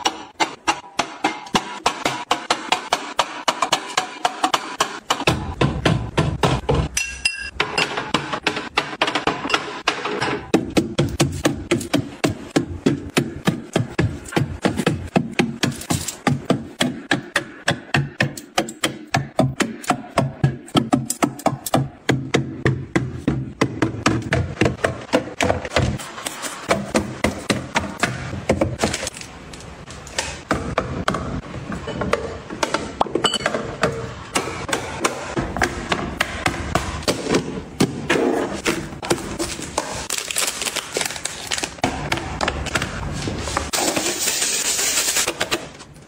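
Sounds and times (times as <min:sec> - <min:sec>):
bottles clinking in refrigerator: 0:33.2 - 0:33.7.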